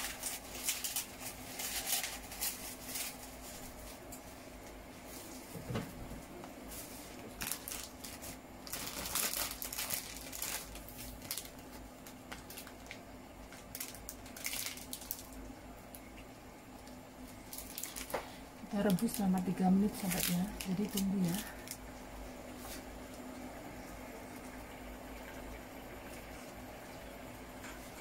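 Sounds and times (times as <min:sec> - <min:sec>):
plastic sachets crinkling: 0:00.0 - 0:04.2, 0:07.2 - 0:16.1, 0:16.8 - 0:22.0
faint steady hum: 0:00.0 - 0:28.0.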